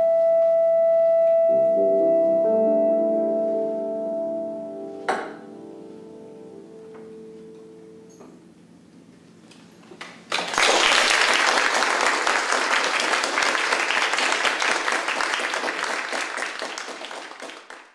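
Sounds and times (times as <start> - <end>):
audience applauding: 10.0 - 17.9.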